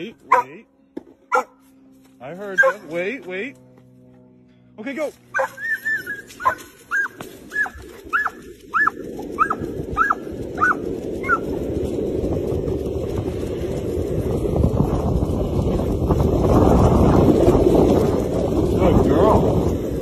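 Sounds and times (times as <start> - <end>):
dog whining: 5.3 - 11.4
wind on microphone: 6.0 - 20.0.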